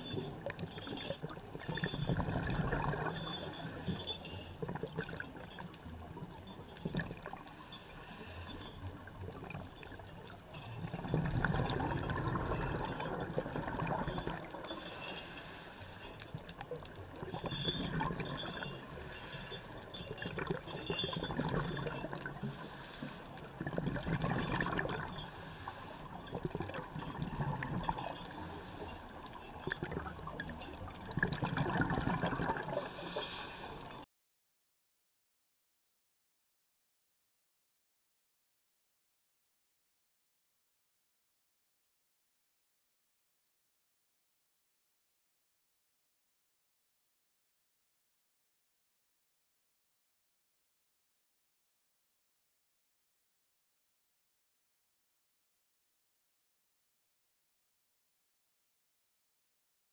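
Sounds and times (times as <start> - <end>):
underwater exhaled bubbles gurgling: 0.0 - 34.0.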